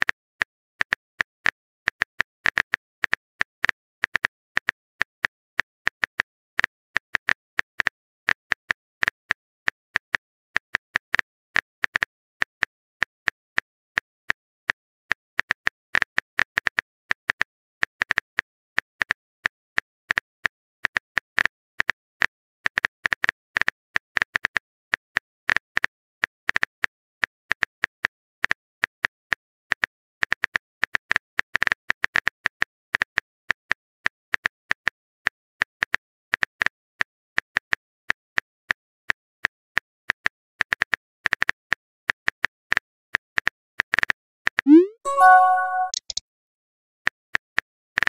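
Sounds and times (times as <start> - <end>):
phone keyboard typing clicks: 44.7 - 46.2.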